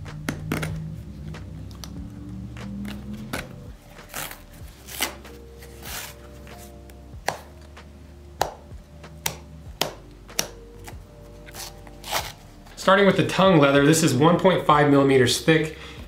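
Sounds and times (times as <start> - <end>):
faint background music: 0.0 - 16.0.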